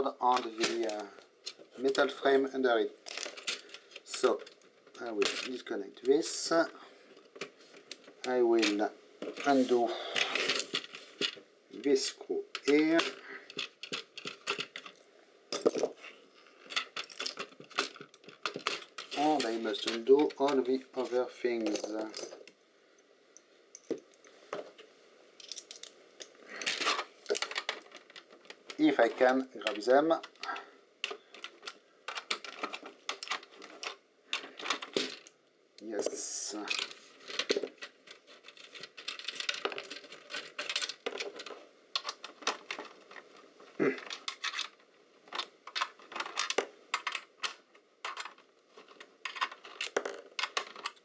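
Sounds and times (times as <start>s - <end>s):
metallic clinks of small parts: 25.4s - 35.4s.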